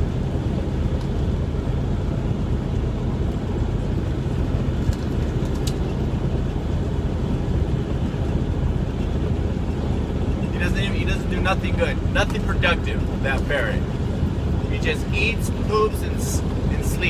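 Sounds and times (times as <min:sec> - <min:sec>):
truck diesel engine drone: 0:00.0 - 0:17.0.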